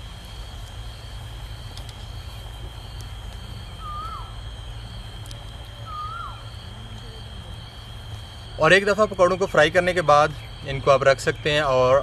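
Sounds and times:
high insect drone: 0.0 - 12.0
bird whistled call: 3.8 - 4.4, 5.8 - 6.5.

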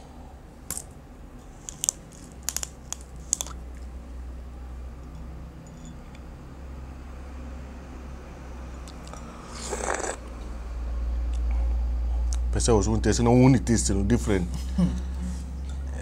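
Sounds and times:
steady low hum: 0.0 - 16.0
small objects clicking and crinkling: 1.6 - 3.6.

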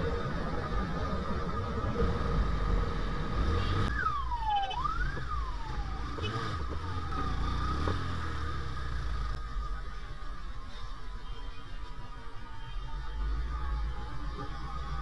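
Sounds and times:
street traffic rumbling: 0.0 - 15.0
siren-like wail: 3.9 - 7.9.

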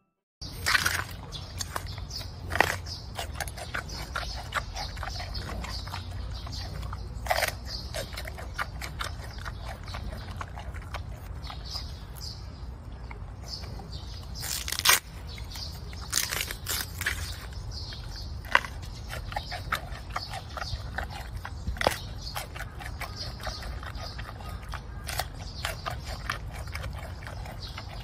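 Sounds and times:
panda chewing bamboo: 0.4 - 28.0.

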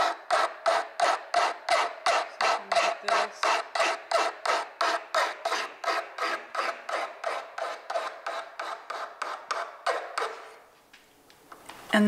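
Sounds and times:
hand file rasping on metal: 0.0 - 10.6.

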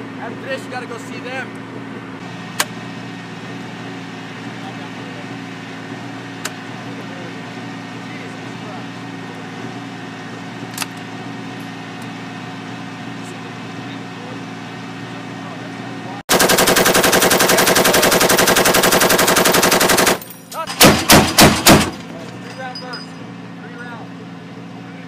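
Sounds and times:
rapid automatic gunfire: 16.3 - 20.2, 20.8 - 22.0.

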